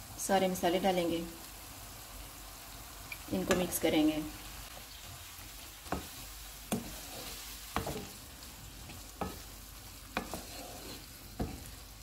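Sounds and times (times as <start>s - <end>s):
onions sizzling in oil: 0.0s - 12.0s
wooden spatula stirring: 5.8s - 12.0s.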